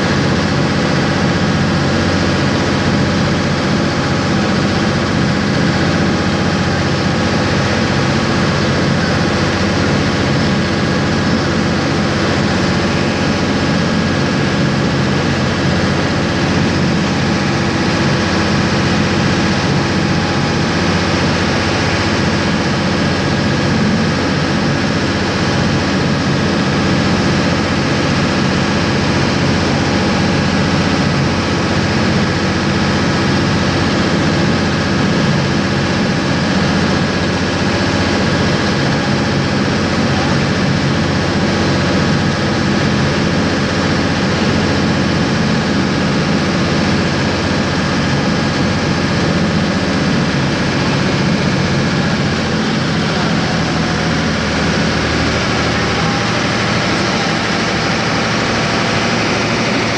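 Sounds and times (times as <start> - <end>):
boat engine droning: 0.0 - 59.9
water rushing and churning: 0.0 - 59.9.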